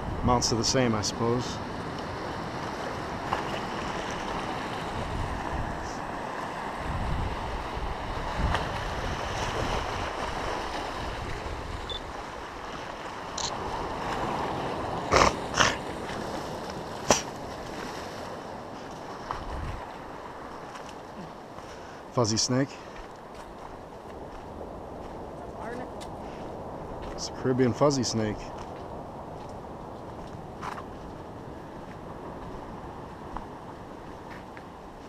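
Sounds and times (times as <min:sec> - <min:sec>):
sea surf: 0:00.0 - 0:35.0
wind buffeting microphone: 0:01.6 - 0:20.8, 0:23.0 - 0:35.0
wind rushing: 0:06.7 - 0:12.3.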